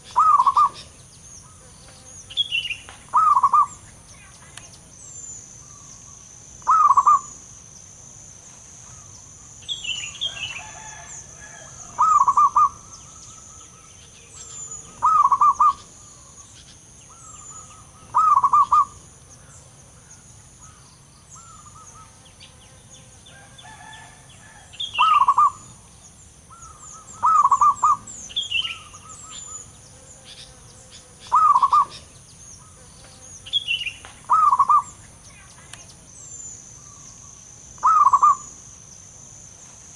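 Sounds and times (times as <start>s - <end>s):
dove cooing: 0.0s - 0.9s, 3.1s - 3.8s, 6.6s - 7.4s, 10.6s - 16.4s, 17.1s - 19.0s, 23.7s - 25.8s, 26.5s - 29.7s, 31.3s - 32.0s, 34.3s - 35.0s, 37.8s - 38.5s
faint high hiss: 0.0s - 39.9s.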